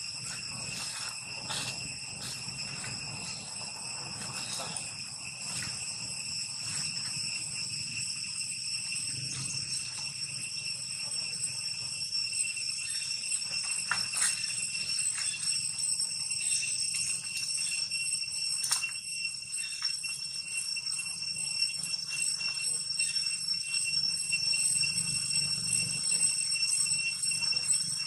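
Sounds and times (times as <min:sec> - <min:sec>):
high-pitched insect drone: 0:00.0 - 0:28.0
clicks and rustles in leaf litter: 0:00.2 - 0:05.8.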